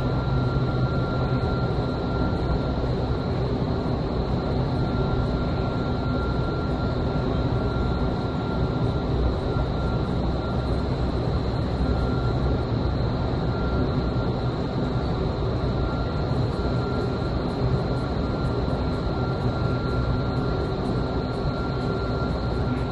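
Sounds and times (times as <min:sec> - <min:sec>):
loud rush of fan air: 0:00.0 - 0:00.8
thin steady whine: 0:00.0 - 0:22.9.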